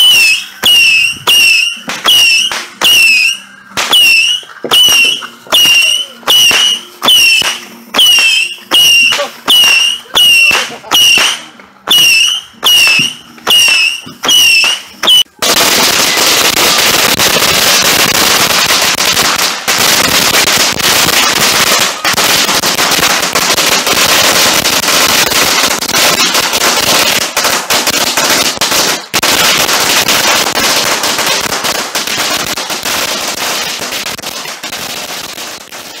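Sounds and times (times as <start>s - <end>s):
fireworks cracking and popping: 0.0s - 36.0s.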